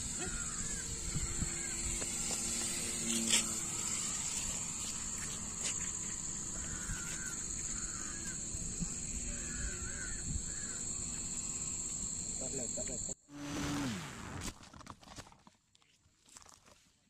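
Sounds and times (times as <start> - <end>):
high hum of insects: 0.0 - 14.4
crows cawing: 0.1 - 1.8, 6.4 - 8.6, 9.2 - 11.2.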